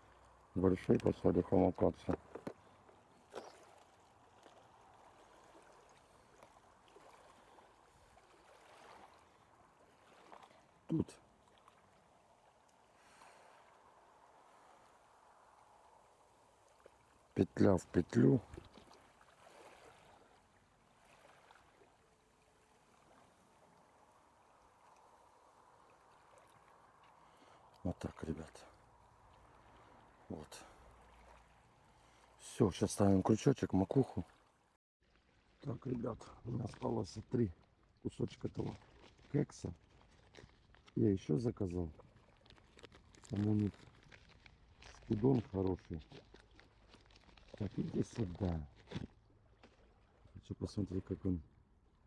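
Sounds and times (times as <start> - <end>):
faint outdoor background hiss: 0.0 - 39.8.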